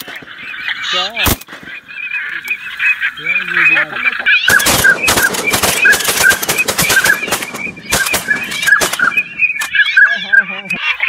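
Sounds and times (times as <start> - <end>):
waterfowl honking: 0.0 - 11.0
sharp cracks and rustles: 4.5 - 9.8.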